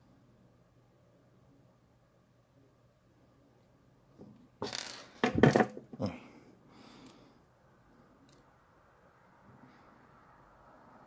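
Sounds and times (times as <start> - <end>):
clattering on a workbench: 4.2 - 6.0.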